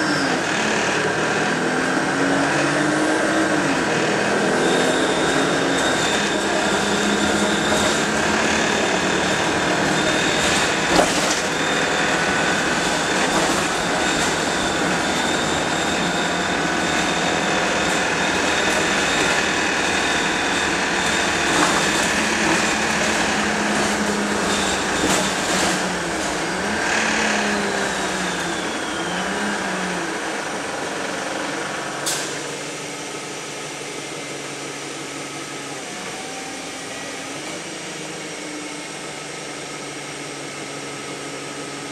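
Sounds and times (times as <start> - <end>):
bus engine and road noise: 0.0 - 41.9
knocks and rattles: 6.0 - 26.9.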